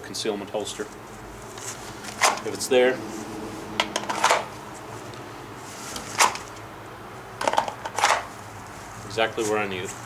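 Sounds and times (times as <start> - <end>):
clothing rustles: 0.8 - 6.6, 8.0 - 10.0.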